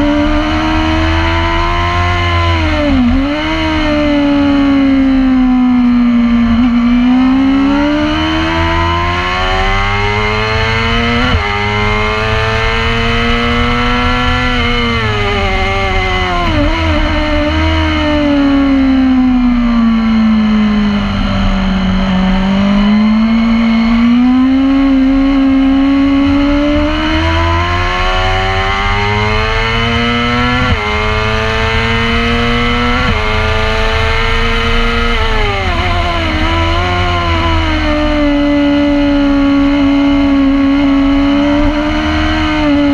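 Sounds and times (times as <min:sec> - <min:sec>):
racing motorcycle engine: 0:00.0 - 0:42.9.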